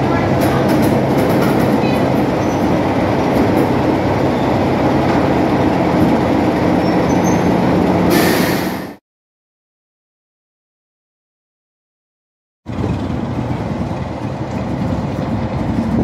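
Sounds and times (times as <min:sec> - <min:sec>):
diesel locomotive engine running: 0:00.0 - 0:09.0, 0:12.7 - 0:16.0
short hiss: 0:08.1 - 0:09.0.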